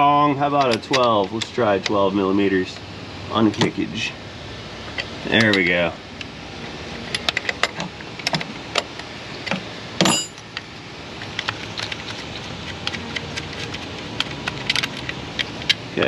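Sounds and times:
ringing metal clank: 10.0 - 10.4.

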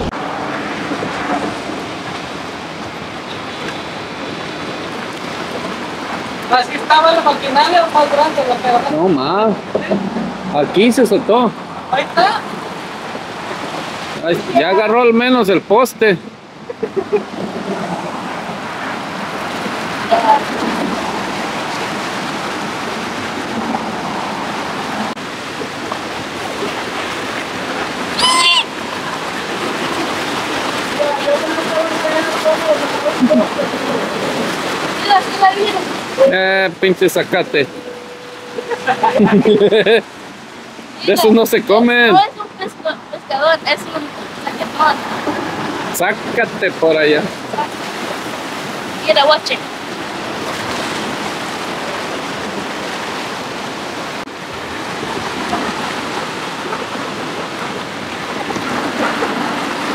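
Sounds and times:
seawater rushing and splashing: 0.0 - 59.9
sea water lapping against rocks: 17.2 - 59.9.

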